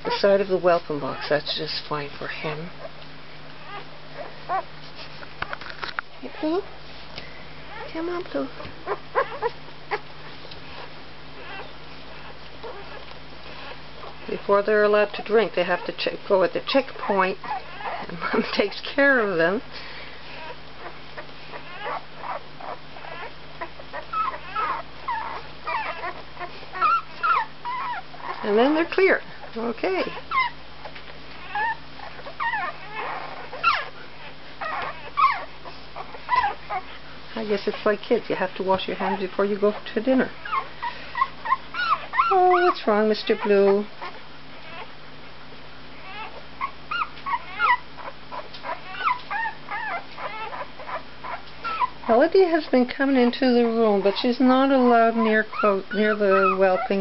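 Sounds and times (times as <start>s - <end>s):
puppy squeaking and whimpering: 0.0s - 1.6s, 2.2s - 3.0s, 3.6s - 4.7s, 7.7s - 19.4s, 20.3s - 45.0s, 45.9s - 57.0s.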